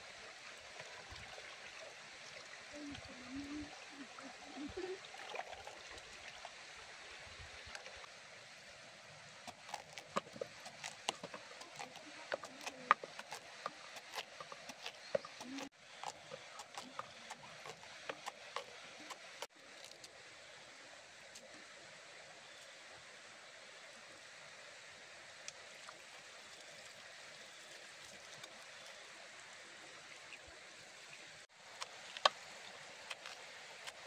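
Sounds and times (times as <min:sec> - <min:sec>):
faint water trickle: 0:00.0 - 0:34.0
cleaver chopping pumpkin: 0:09.5 - 0:19.5.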